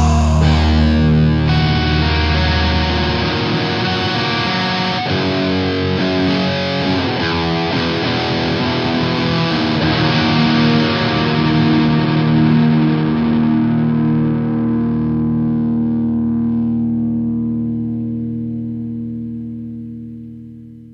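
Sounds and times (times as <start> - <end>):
rock-metal music: 0.0 - 13.6
distorted electric guitar: 0.0 - 20.9.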